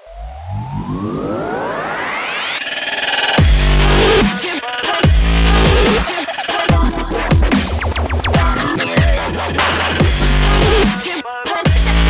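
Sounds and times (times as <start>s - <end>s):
heavy sustained bass: 0.0s - 2.0s
rising synth sweep: 0.0s - 4.3s
warbling synth tones: 0.0s - 4.3s.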